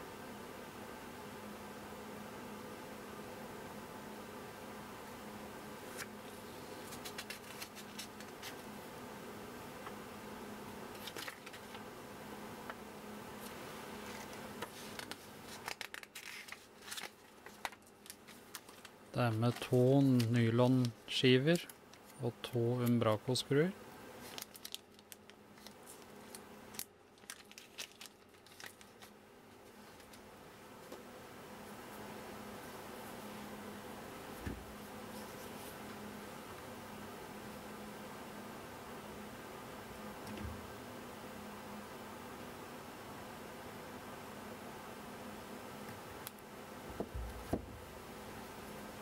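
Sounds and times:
steady low hum: 0:00.0 - 0:49.0
paper pages turning: 0:05.9 - 0:06.1, 0:06.8 - 0:08.7, 0:10.9 - 0:11.8, 0:13.4 - 0:23.0, 0:24.2 - 0:30.2
plastic bag crinkling: 0:06.8 - 0:08.6, 0:11.0 - 0:11.8, 0:14.0 - 0:22.2, 0:24.2 - 0:30.2.

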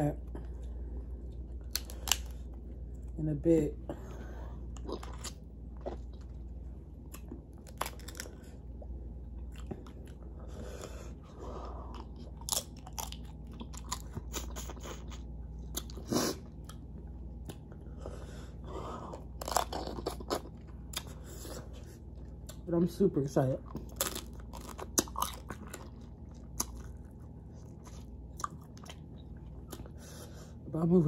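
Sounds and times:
steady low hum: 0:00.0 - 0:31.0
person chewing and crunching food: 0:00.1 - 0:03.2, 0:03.9 - 0:30.7.

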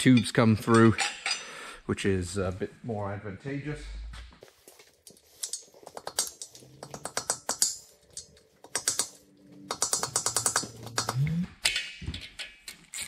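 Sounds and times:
hand ratchet clicking: 0:05.4 - 0:13.0.

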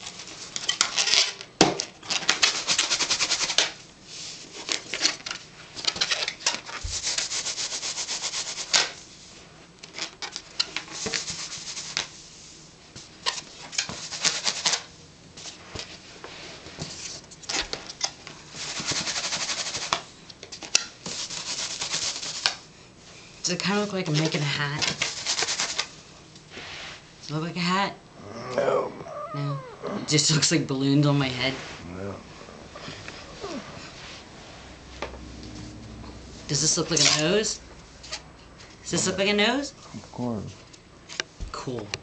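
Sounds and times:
balloons squeaky rubbing: 0:33.3 - 0:34.2.

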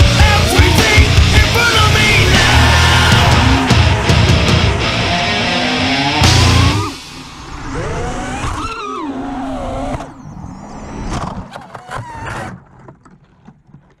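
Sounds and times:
drone hitting tree branches: 0:00.6 - 0:08.6.

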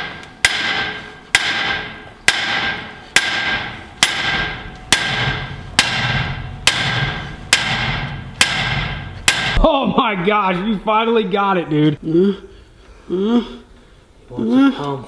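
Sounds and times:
hammer pounding on metal: 0:00.0 - 0:09.7.

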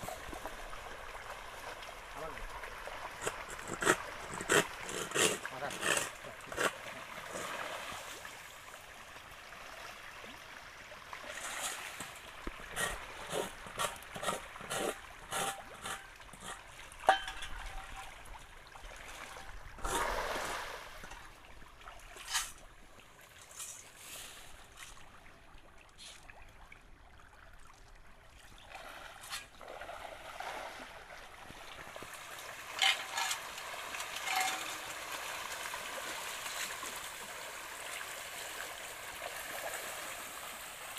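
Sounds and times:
churning water: 0:00.0 - 0:23.8, 0:24.4 - 0:40.9
fish splashing and thrashing: 0:02.7 - 0:08.3, 0:11.3 - 0:22.7, 0:28.8 - 0:37.6.

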